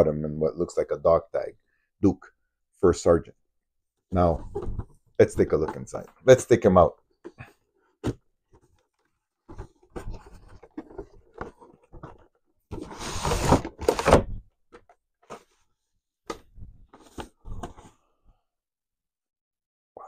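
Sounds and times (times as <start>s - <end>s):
packaging taps and rustles: 8.0s - 12.4s
packaging rustling scrape: 9.6s - 14.3s.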